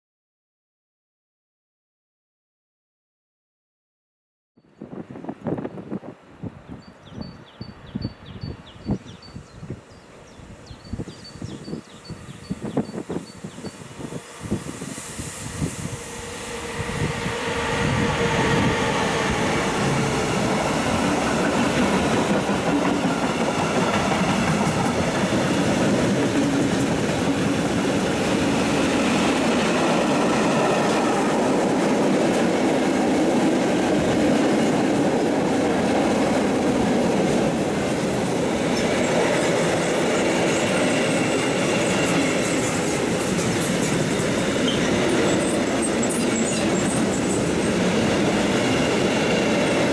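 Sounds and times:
freight train clattering on rails: 17.3 - 49.9.

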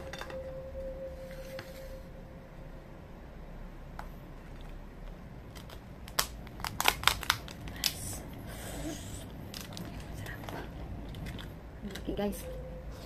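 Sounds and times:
crab shell cracking: 5.6 - 7.9.

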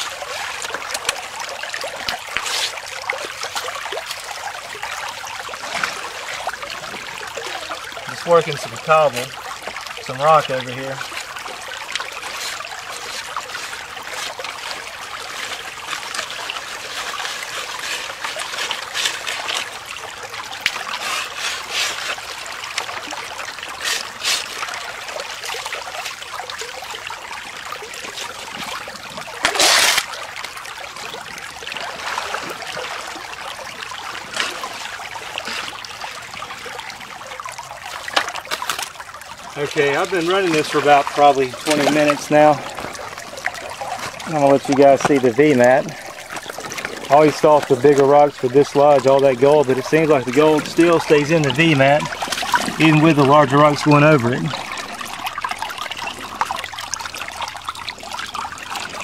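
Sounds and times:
creek water running through sluice: 0.0 - 59.0
gravel being worked: 2.1 - 2.8, 12.2 - 19.9, 20.9 - 22.4, 23.8 - 24.6, 28.0 - 30.4, 39.6 - 59.0.

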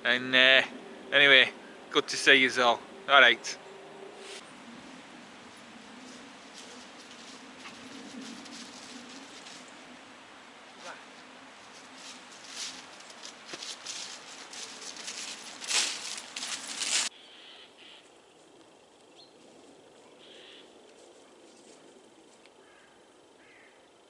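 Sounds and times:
woodland ambience: 0.0 - 24.0
footsteps crunching through leaves: 5.4 - 10.0, 10.8 - 17.1
faint bird calls: 17.1 - 18.1, 20.0 - 21.3, 22.6 - 24.0.

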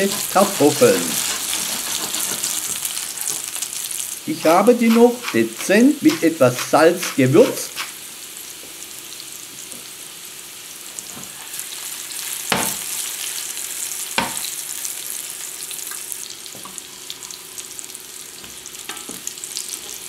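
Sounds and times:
plastic spatula scraping a pan: 0.0 - 3.4
potatoes sizzling in a frying pan: 0.0 - 20.0.

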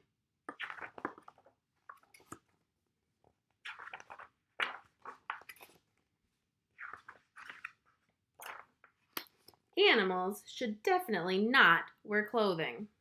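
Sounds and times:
book pages rustling: 0.5 - 9.7.

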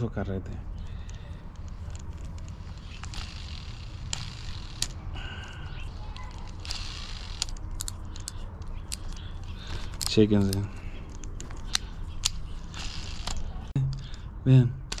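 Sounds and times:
steady low hum: 0.0 - 15.0
fishing reel clicks: 1.0 - 5.0, 5.6 - 10.2, 11.7 - 13.5
fishing reel rasping: 1.0 - 10.2, 11.7 - 13.7.

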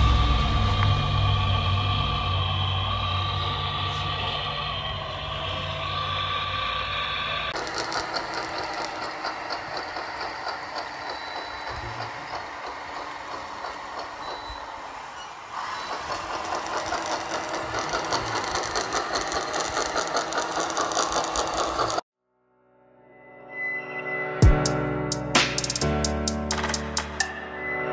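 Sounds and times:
model loader mechanical rattle and whir: 7.6 - 22.0.

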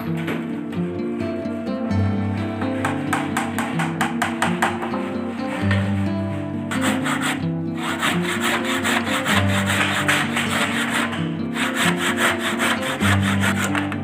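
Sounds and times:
background music with held notes: 0.0 - 14.0
handsaw cutting wood: 6.7 - 14.0.

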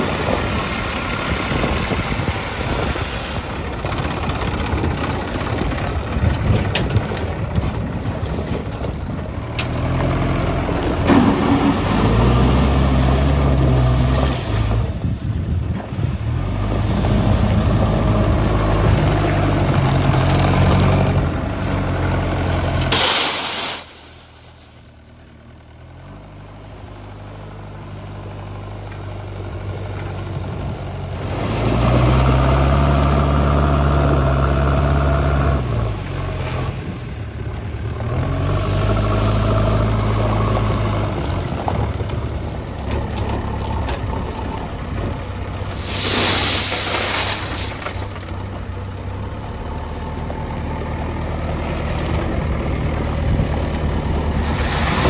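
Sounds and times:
diesel engine under load: 0.0 - 55.0
brief rush of noise: 45.8 - 47.8.

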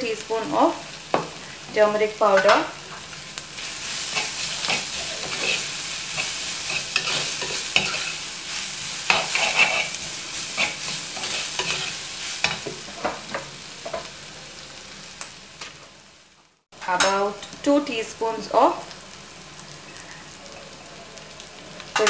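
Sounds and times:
onions sizzling in hot oil: 0.0 - 22.0
spoon scraping and knocking a pot: 6.2 - 8.2, 9.1 - 10.0.

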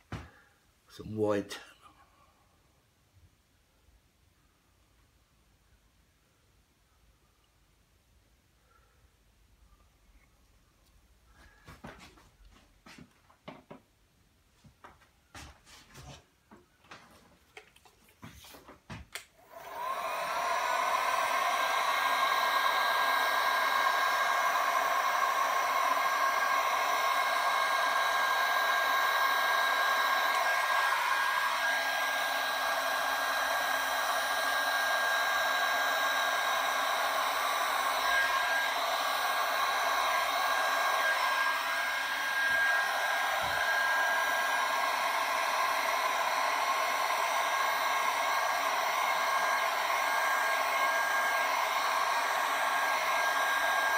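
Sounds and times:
heat gun fan whining: 19.1 - 53.9.

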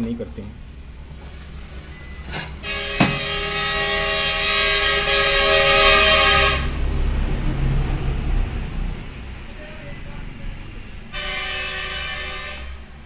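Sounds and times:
horn blast: 2.6 - 7.0, 11.1 - 13.0
sharp knock: 3.0 - 3.3.

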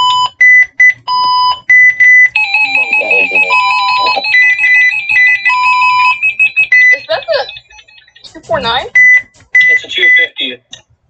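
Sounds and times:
wavering high alarm tone: 1.9 - 9.9.

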